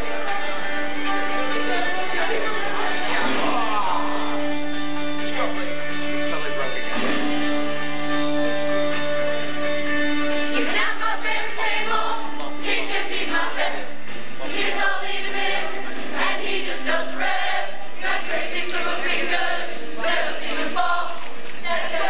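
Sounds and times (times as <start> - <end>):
choir singing rock musical: 6.6 - 22.0.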